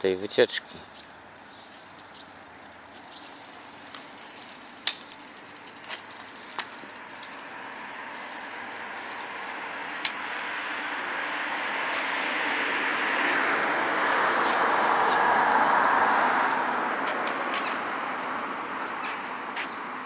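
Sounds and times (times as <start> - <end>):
vehicle approaching: 0.6 - 20.0
sharp clicks and chirps: 0.9 - 9.2.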